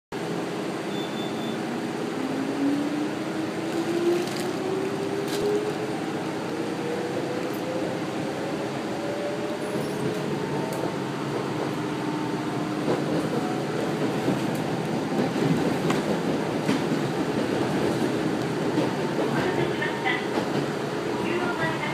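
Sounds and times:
train running rumble: 1.9s - 21.9s.

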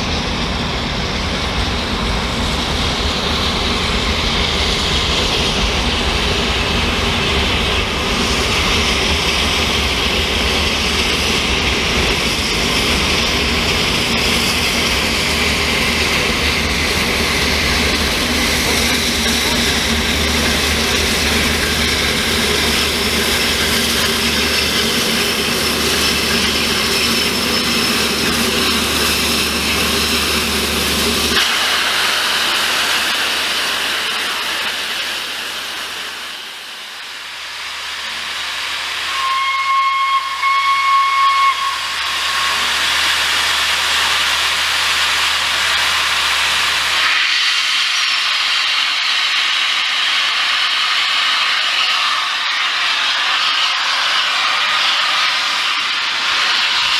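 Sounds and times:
steam locomotive hissing steam: 0.0s - 56.9s
steam whistle blast: 38.1s - 43.2s.

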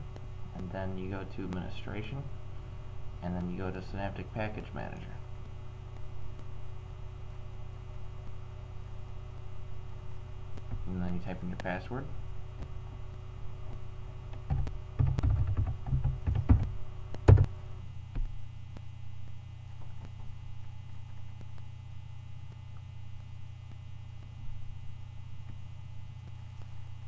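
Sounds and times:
low electrical hum: 0.0s - 27.0s
computer keyboard typing: 14.4s - 17.5s.

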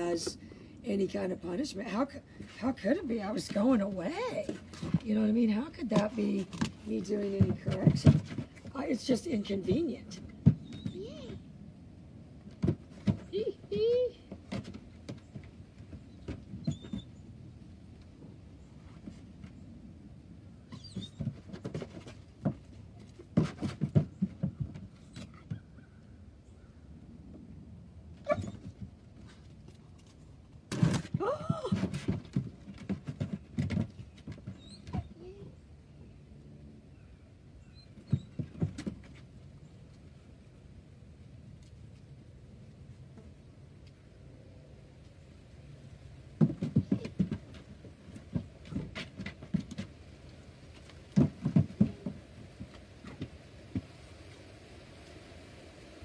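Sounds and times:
puppy crying: 28.2s - 28.6s
paws knocking on plastic cot: 46.4s - 49.9s, 50.8s - 53.9s.

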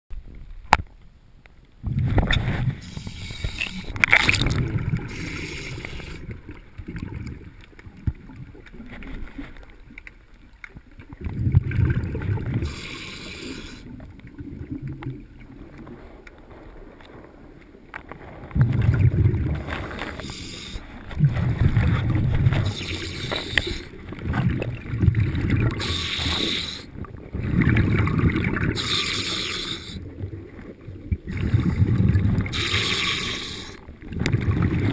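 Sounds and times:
exhaled bubbles rumbling: 1.8s - 34.9s
diver breathing through regulator: 2.4s - 4.0s, 5.0s - 6.3s, 12.6s - 13.9s, 20.0s - 24.0s, 25.7s - 26.9s, 28.7s - 30.0s, 32.5s - 33.8s.

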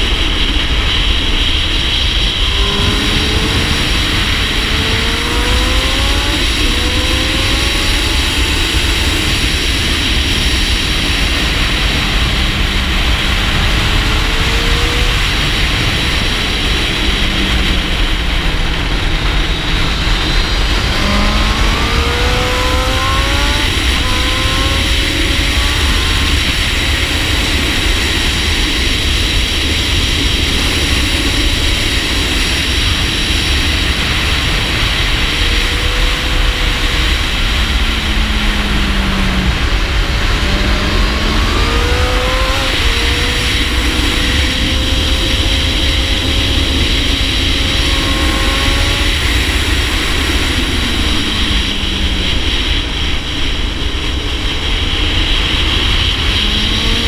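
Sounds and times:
heavy wind rush: 0.0s - 57.0s
motorcycle engine revving: 0.0s - 57.0s.

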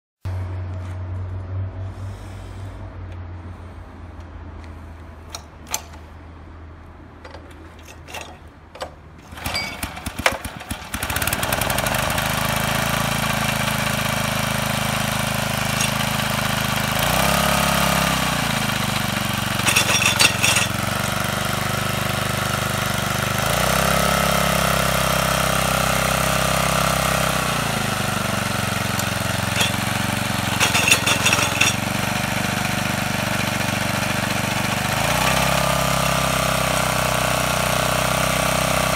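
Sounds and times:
clicks and rattles: 7.2s - 10.8s, 15.7s - 16.1s, 19.6s - 21.2s, 28.9s - 32.0s
clattering bursts: 7.2s - 11.9s, 15.6s - 16.3s, 19.4s - 21.3s, 28.6s - 32.4s
tiller engine running: 7.2s - 38.9s.

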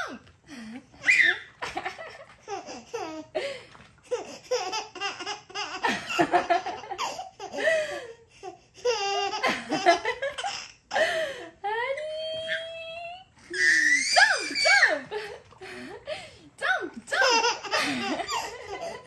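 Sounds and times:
baby laughing: 1.0s - 3.4s, 4.0s - 11.1s, 17.1s - 19.0s.

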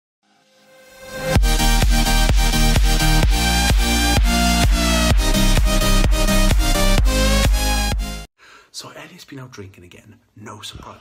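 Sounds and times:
electronic dance music: 0.5s - 8.3s.

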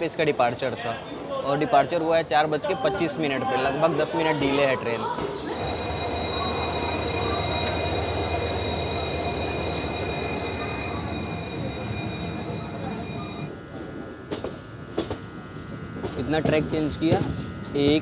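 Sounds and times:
train wheels rumbling on rail: 5.2s - 18.0s
high-pitched wheel squeal: 5.4s - 13.5s.

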